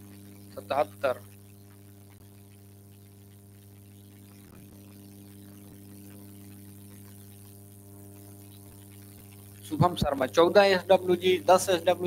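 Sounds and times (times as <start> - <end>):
faint hiss: 0.0 - 1.4
electrical mains hum: 0.0 - 12.0.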